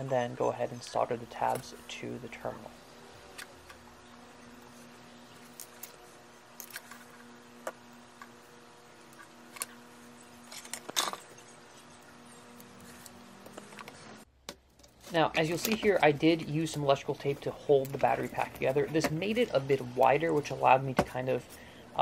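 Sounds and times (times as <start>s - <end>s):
faint steady hum: 0.0s - 22.0s
small tools clicking and tapping: 12.6s - 16.0s.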